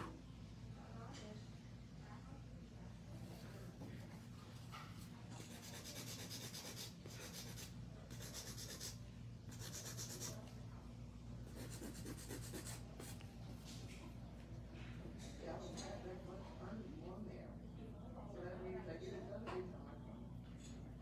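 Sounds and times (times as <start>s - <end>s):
nail file rubbing on nails: 5.4s - 10.5s, 11.4s - 13.2s.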